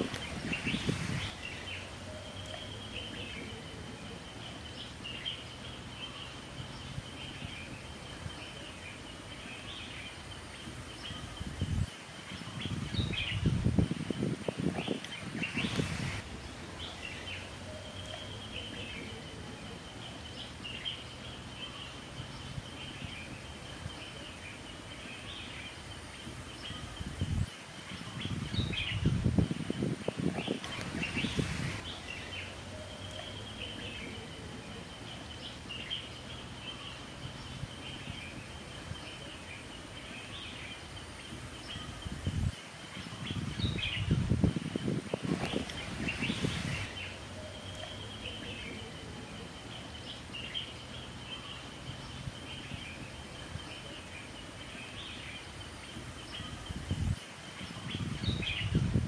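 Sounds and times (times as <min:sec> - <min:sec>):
birds chirping: 0:00.0 - 0:59.0
steady background hiss: 0:00.0 - 0:59.0.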